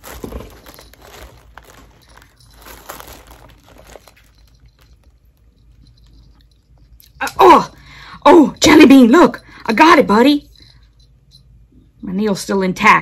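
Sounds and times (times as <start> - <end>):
faint rustling: 0.0 - 7.0.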